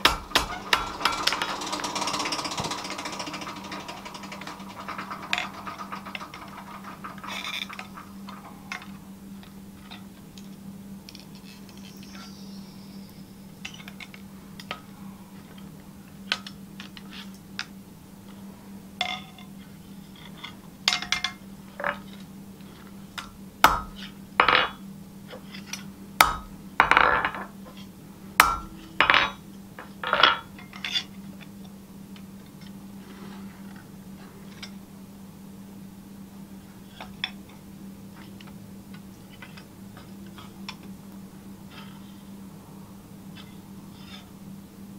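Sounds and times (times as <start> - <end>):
steady low hum: 0.0 - 44.9
metal tools clinking on anvil: 28.4 - 29.4.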